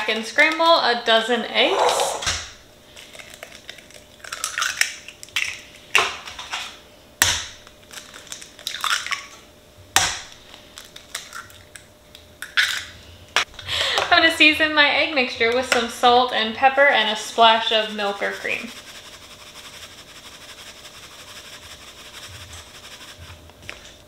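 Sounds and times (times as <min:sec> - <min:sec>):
shells crunching apart: 0:03.0 - 0:05.6
eggshells cracking: 0:03.0 - 0:06.1, 0:07.2 - 0:09.3.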